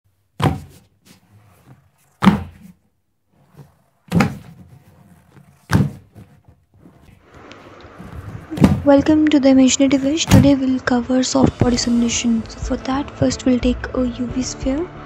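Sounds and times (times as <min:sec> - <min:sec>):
heavy thuds: 0:00.4 - 0:02.8, 0:03.4 - 0:07.3, 0:07.9 - 0:12.0.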